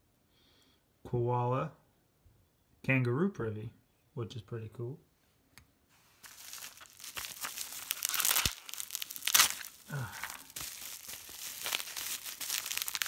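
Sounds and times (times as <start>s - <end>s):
bubble wrap crinkling: 6.1s - 13.0s.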